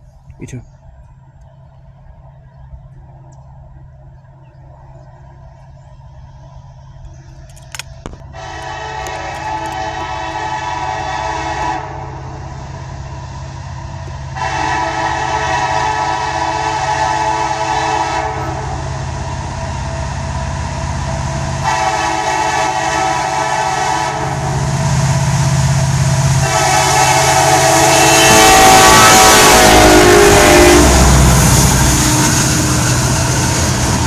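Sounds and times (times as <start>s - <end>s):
locomotive engine rumble: 0.0s - 34.0s
locomotive air horn blasts: 8.3s - 12.4s, 14.3s - 18.9s, 21.6s - 25.4s, 26.2s - 33.1s.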